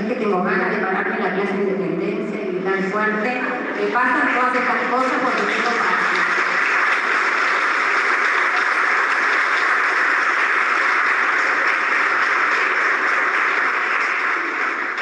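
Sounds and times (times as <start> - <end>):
audience applauding loudly: 3.7 - 15.0.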